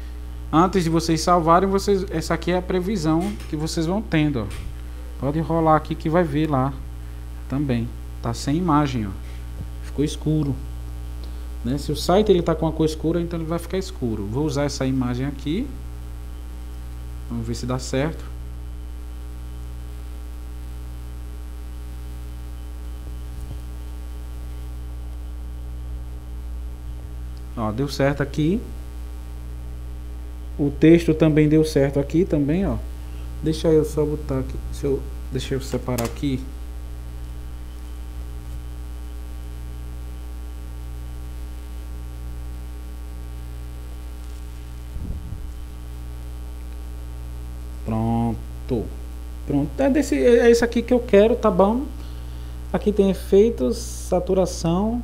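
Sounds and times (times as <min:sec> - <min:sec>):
electrical mains hum: 0:00.0 - 0:55.0
brief low thud: 0:44.9 - 0:45.7.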